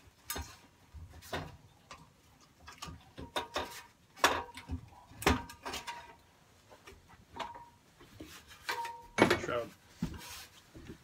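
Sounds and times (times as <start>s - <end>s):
sheet metal clunks and rattles: 0.3s - 6.2s.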